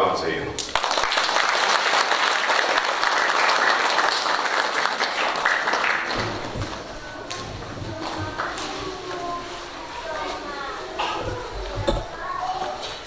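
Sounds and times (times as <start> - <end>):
congregation applauding: 0.6 - 7.4.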